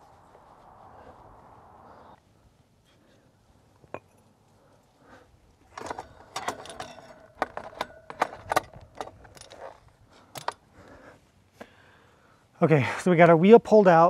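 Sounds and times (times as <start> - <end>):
metallic clinks and rattles: 5.7 - 10.6.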